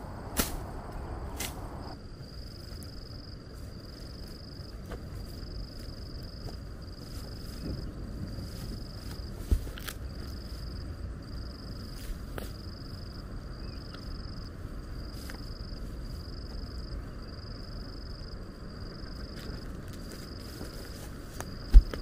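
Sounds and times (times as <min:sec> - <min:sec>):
low rushing noise: 0:00.0 - 0:02.0
insect trilling: 0:09.8 - 0:21.8.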